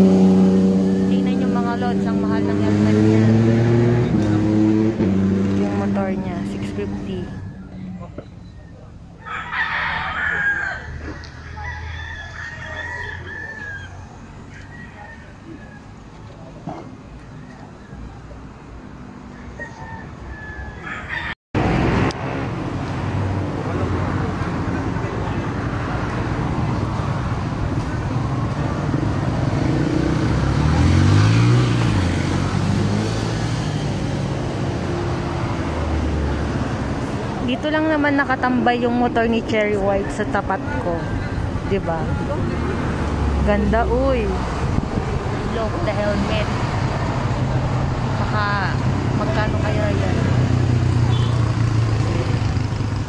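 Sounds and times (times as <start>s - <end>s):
motorcycle engine idling and revving: 0.0s - 53.0s
rooster crowing: 9.2s - 16.0s, 19.2s - 21.4s.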